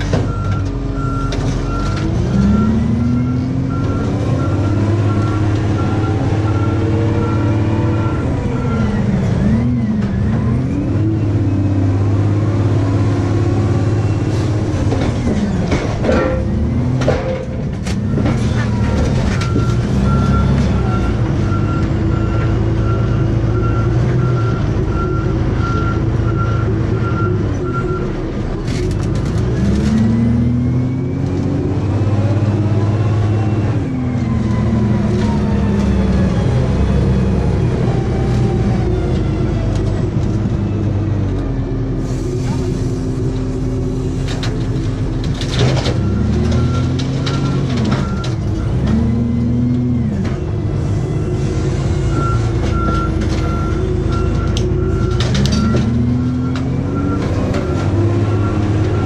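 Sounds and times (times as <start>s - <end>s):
diesel engine under load: 0.0s - 59.0s
reversing alarm beeping: 0.3s - 9.8s, 18.0s - 28.2s, 46.0s - 49.4s, 51.1s - 59.0s.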